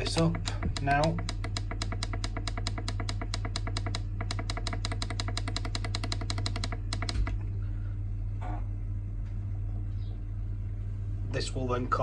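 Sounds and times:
thermostat beeping: 0:00.0 - 0:07.4
steady low hum: 0:00.0 - 0:12.0.

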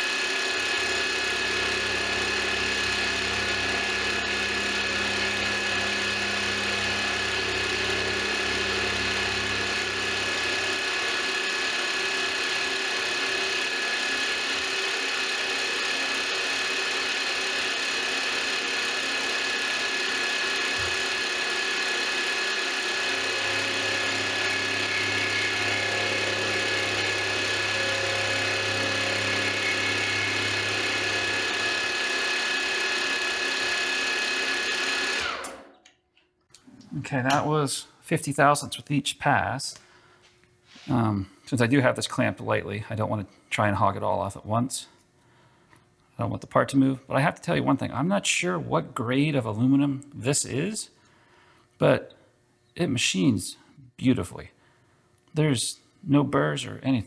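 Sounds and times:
milling machine whine: 0:00.0 - 0:35.7.

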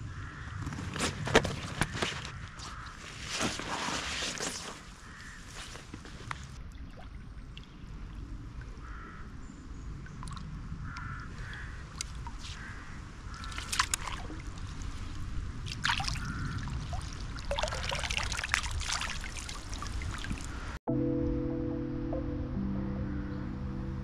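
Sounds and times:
water splashing and trickling: 0:02.6 - 0:20.8.

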